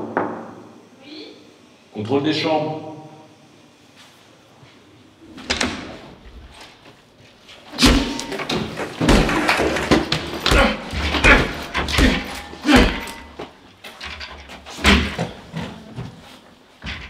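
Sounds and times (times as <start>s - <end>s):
heavy thumps and bangs: 7.8s - 13.5s.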